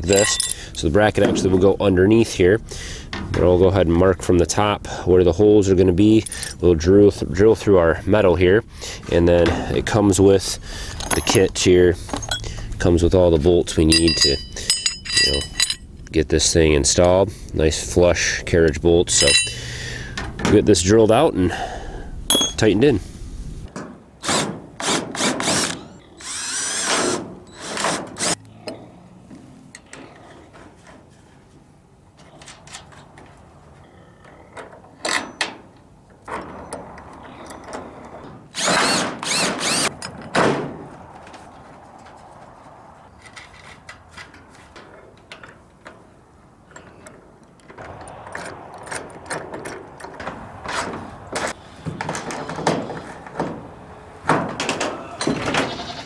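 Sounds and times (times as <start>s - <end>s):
cordless drill boring metal: 24.8s - 28.4s, 38.6s - 39.9s.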